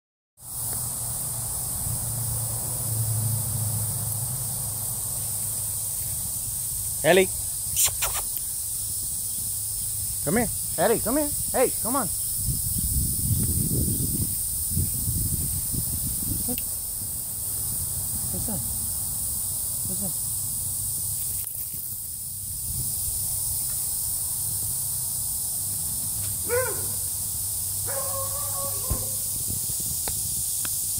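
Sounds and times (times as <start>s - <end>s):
high hiss: 0.4s - 30.9s.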